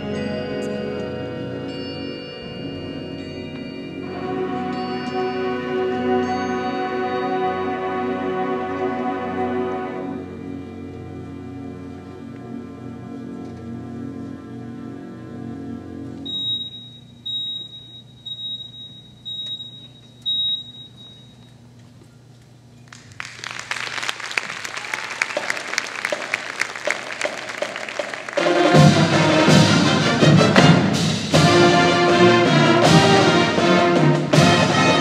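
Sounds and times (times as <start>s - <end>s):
high electronic beep: 16.3s - 21.5s
marching band playing: 25.3s - 35.0s.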